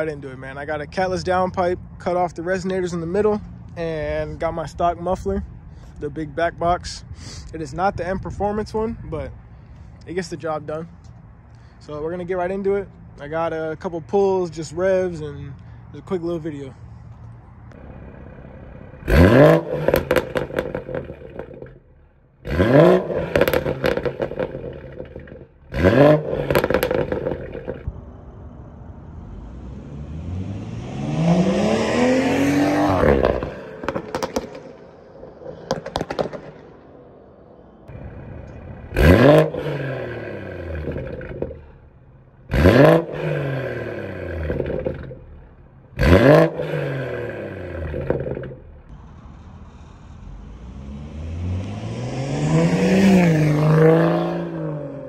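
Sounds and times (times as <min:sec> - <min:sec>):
car engine revving with crackles: 0:16.8 - 0:28.0, 0:29.1 - 0:55.0.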